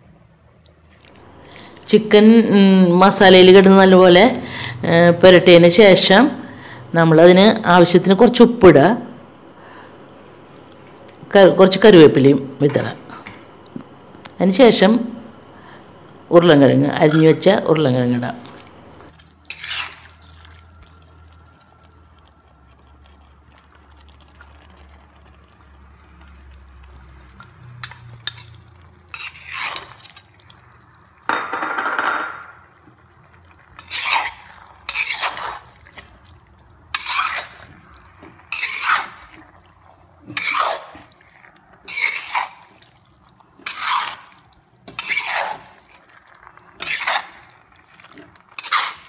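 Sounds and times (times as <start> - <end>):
wooden spatula scraping a pan: 19.5 - 20.2, 29.1 - 30.2, 33.8 - 35.7, 36.9 - 37.7, 38.5 - 39.4, 40.3 - 41.1, 41.8 - 42.8, 43.6 - 44.3, 44.9 - 46.0, 46.8 - 49.0.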